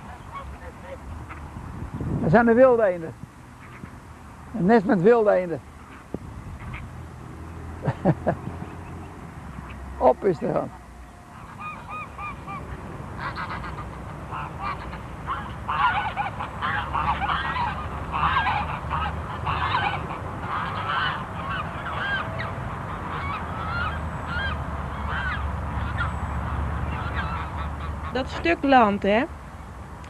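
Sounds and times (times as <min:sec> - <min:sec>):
geese honking: 0:00.0 - 0:01.5, 0:11.3 - 0:28.9.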